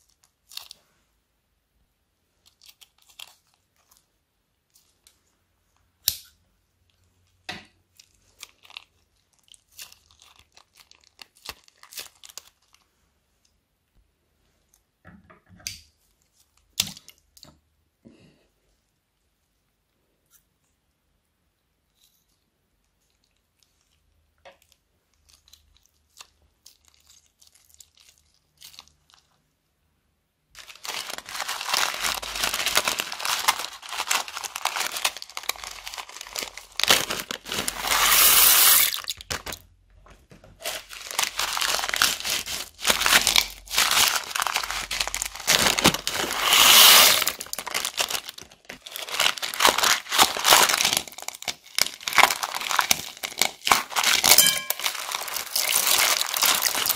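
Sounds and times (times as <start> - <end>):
plastic bags crinkling: 8.0 - 12.8, 30.6 - 56.9.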